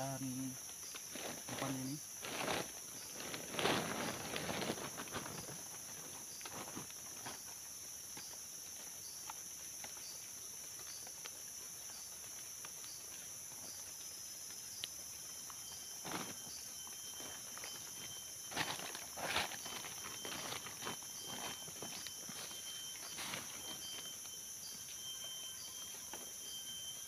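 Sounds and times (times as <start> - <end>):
forest insects droning: 0.0 - 27.0
rustling in dry leaves: 0.9 - 7.6, 15.4 - 24.9.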